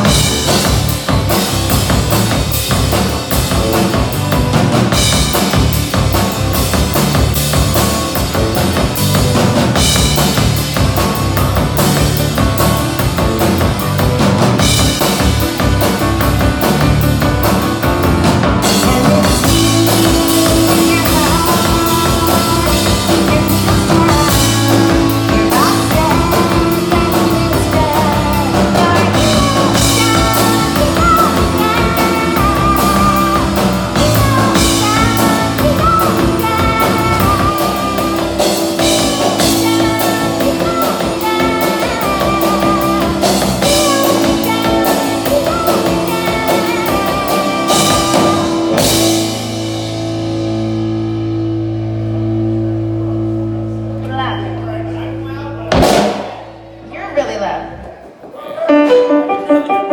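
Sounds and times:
live rock band playing: 0.0s - 59.9s.

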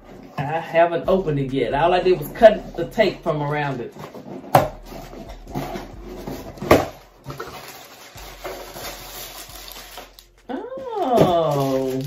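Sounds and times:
packing paper rustling: 4.0s - 12.0s
sharp paper crackle: 7.4s - 12.0s.

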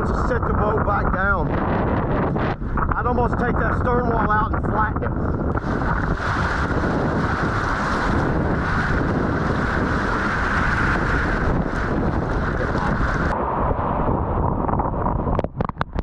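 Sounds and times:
wind noise on microphone: 0.0s - 16.0s
whitewater rushing and splashing: 5.5s - 13.4s.

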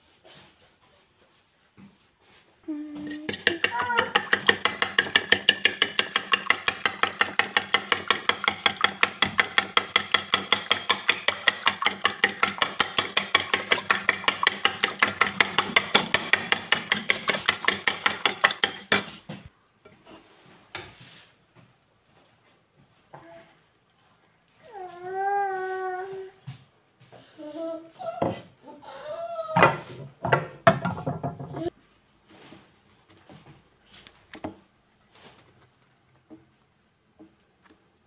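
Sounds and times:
fork beating eggs in ceramic bowl: 3.0s - 19.5s.

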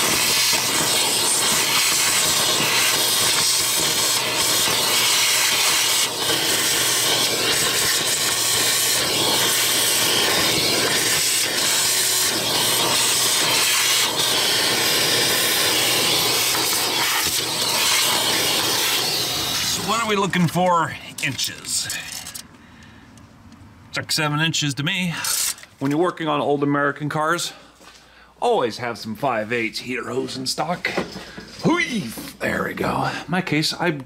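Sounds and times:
steady loud hiss: 0.0s - 22.4s.

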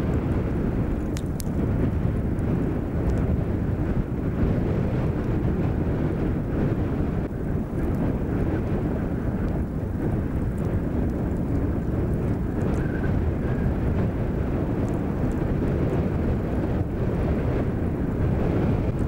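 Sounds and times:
vegetation burning crackles: 0.0s - 19.0s
wind rumble on microphone: 0.0s - 19.0s.

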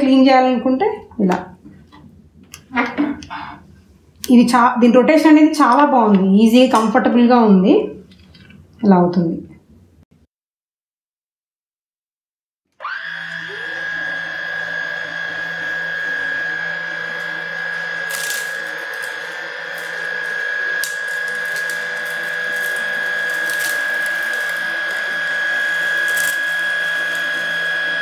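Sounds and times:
vacuum motor whine: 12.8s - 28.0s.

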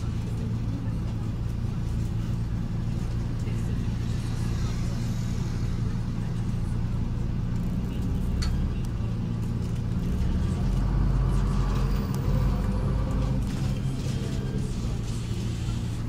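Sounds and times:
bus engine droning: 0.0s - 16.0s.

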